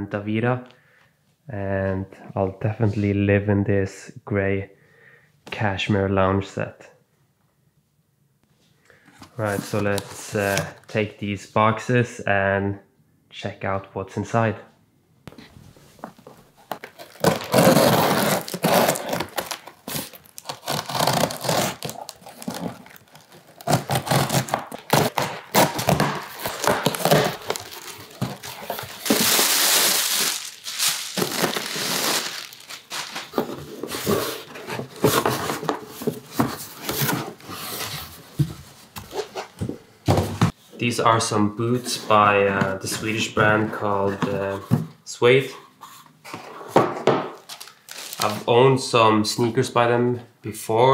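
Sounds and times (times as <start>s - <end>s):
cardboard and plastic rustling: 9.2s - 10.8s, 15.4s - 40.6s, 45.8s - 48.5s
packing tape ripping: 16.7s - 34.1s, 47.4s - 48.3s.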